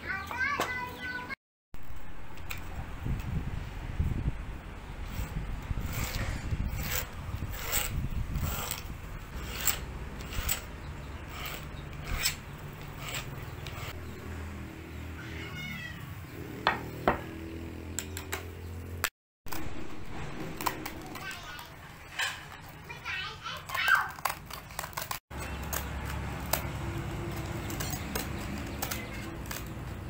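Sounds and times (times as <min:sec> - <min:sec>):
scribe scratching sandpaper: 0:05.1 - 0:14.0.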